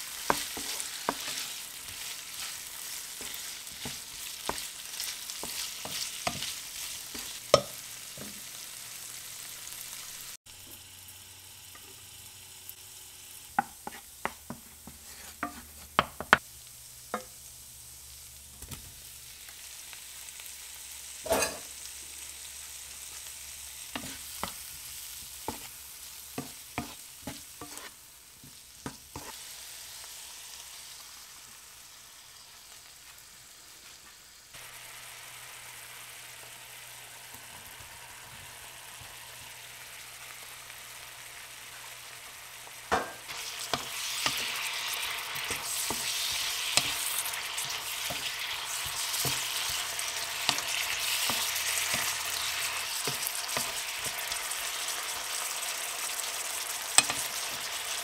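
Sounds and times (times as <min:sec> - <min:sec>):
food sizzling in hot oil: 0:00.0 - 0:58.0
wooden spatula stirring: 0:00.2 - 0:07.7, 0:26.4 - 0:27.9.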